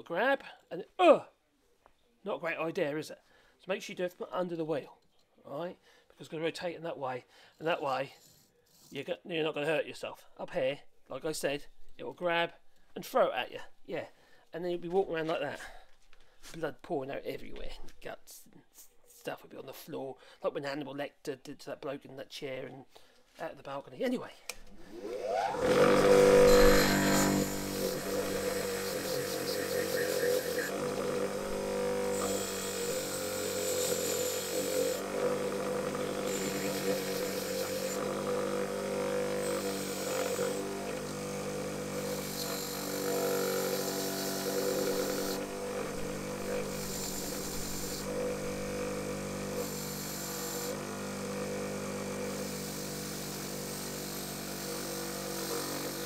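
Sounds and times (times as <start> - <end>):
wire wheel scrubbing steel: 24.9 - 38.3, 41.8 - 48.7
electric wire wheel spinning: 24.9 - 56.0.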